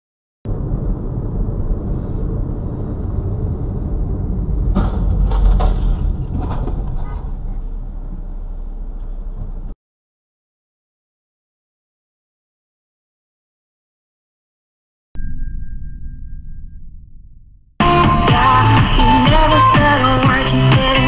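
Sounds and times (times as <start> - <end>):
road and engine rumble: 0.5 - 9.8, 17.8 - 21.0
knocks and rattles: 4.3 - 9.7.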